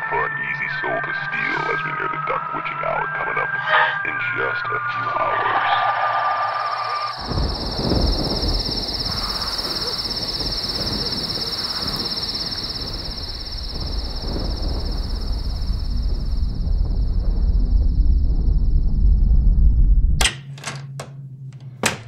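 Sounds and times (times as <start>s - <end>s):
crickets chirping: 5.8s - 19.6s, 21.6s - 22.0s
low rumble: 12.3s - 20.2s.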